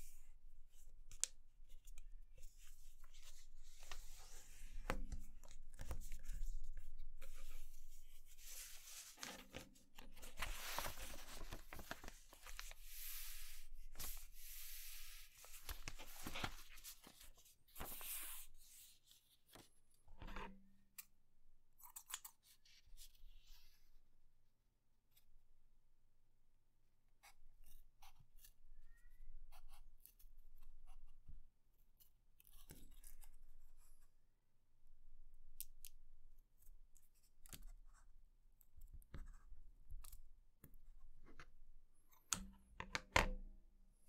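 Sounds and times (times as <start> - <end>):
paper rustling and sliding: 7.2 - 18.5
paper fold clicks: 8.9 - 12.8.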